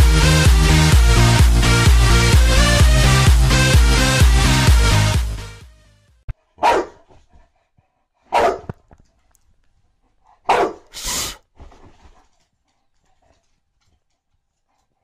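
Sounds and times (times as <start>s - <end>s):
dog barking: 6.4s - 7.2s, 8.3s - 8.8s, 10.4s - 11.0s.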